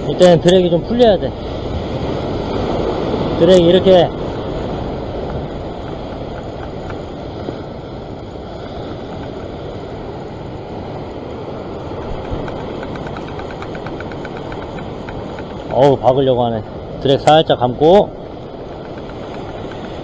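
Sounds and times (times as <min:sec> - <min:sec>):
wind buffeting microphone: 0:00.0 - 0:20.0
surf breaking: 0:11.2 - 0:20.0
fishing reel drag clicking: 0:12.2 - 0:15.8, 0:18.7 - 0:20.0.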